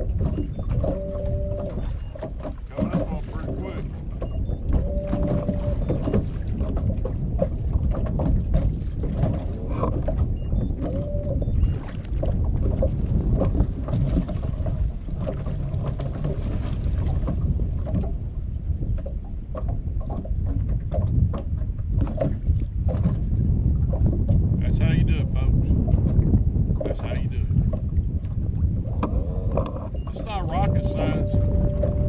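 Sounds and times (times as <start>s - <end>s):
water slapping boat hull: 0.0s - 32.0s
wind buffeting microphone: 0.0s - 32.0s
low rumble: 12.2s - 32.0s.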